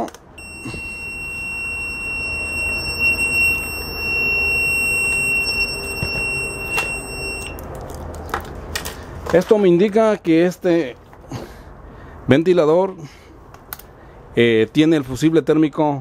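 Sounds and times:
multimeter high beep: 0:00.4 - 0:07.6.

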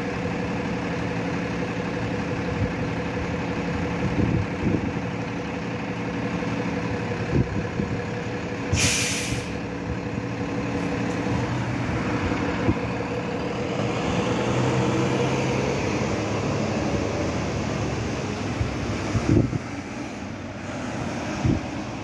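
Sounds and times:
bus engine idling: 0:00.0 - 0:22.0
air brakes hissing: 0:08.7 - 0:09.7.

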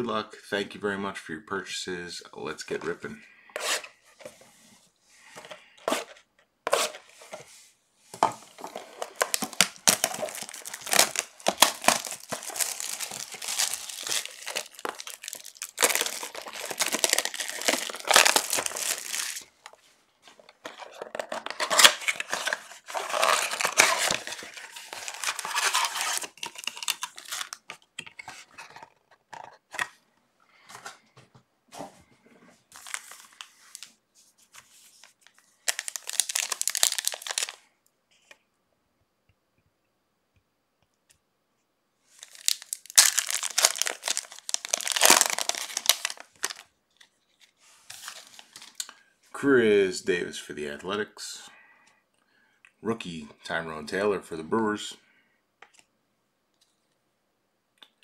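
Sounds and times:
packaging tearing and crinkling: 0:08.5 - 0:19.8, 0:20.4 - 0:27.8, 0:32.7 - 0:33.9, 0:35.6 - 0:37.6, 0:42.2 - 0:46.7, 0:47.9 - 0:48.9.

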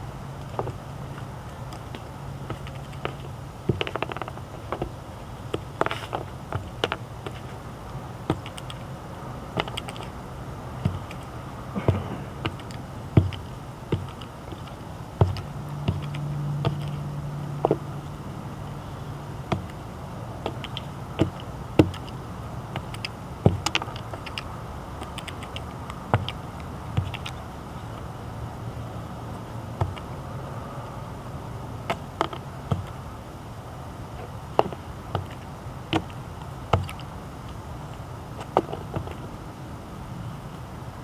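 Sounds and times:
low steady hum: 0:00.0 - 0:41.0
beak pecking ground: 0:00.4 - 0:07.6, 0:08.2 - 0:10.2, 0:10.8 - 0:18.1, 0:18.9 - 0:19.8, 0:20.4 - 0:28.1, 0:31.8 - 0:33.0, 0:34.2 - 0:39.3.

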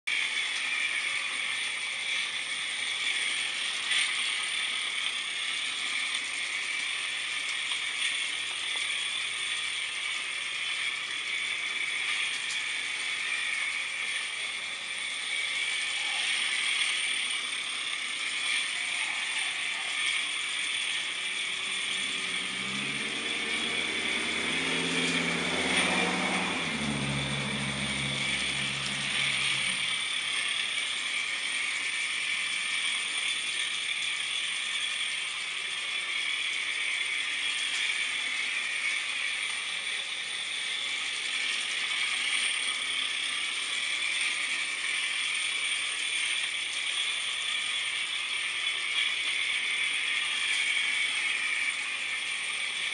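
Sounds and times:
model steam engine chatter: 0:00.1 - 0:52.9
steam hiss: 0:00.1 - 0:52.9
low drone: 0:17.9 - 0:32.4.

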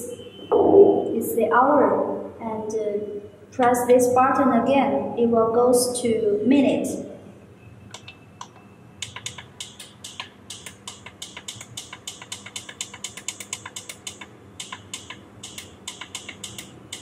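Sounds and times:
alarm clock button clicking: 0:07.9 - 0:17.0.

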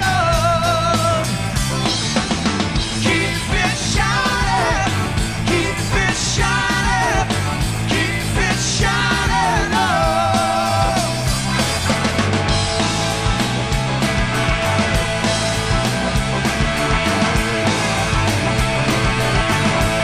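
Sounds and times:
man singing: 0:00.0 - 0:01.4, 0:02.9 - 0:11.3
bass guitar: 0:00.0 - 0:20.0
drums: 0:00.0 - 0:20.0.

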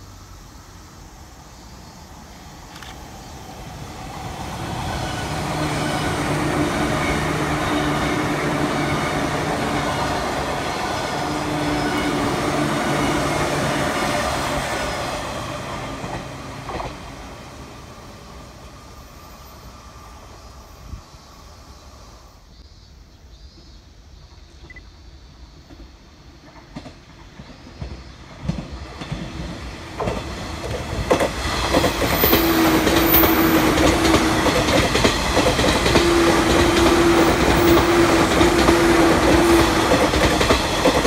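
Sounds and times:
train motor hum: 0:02.0 - 0:22.3, 0:27.7 - 0:41.0
train wheels clattering on rails: 0:03.9 - 0:17.4, 0:25.6 - 0:41.0.

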